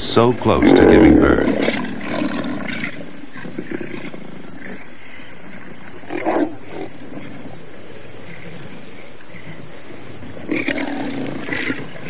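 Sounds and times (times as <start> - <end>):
lioness growling and snarling: 0.4 - 4.8, 5.6 - 7.5, 10.3 - 12.0.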